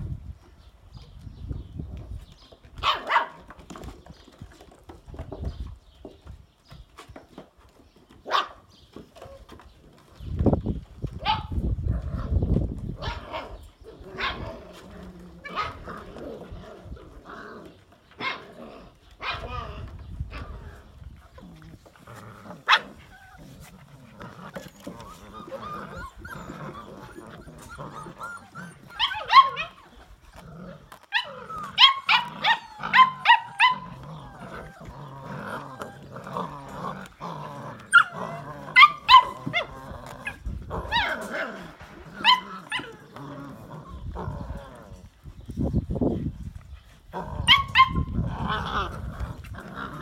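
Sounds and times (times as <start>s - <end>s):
puppies growling: 11.0s - 50.0s
puppies yipping: 21.8s - 44.5s, 46.5s - 50.0s.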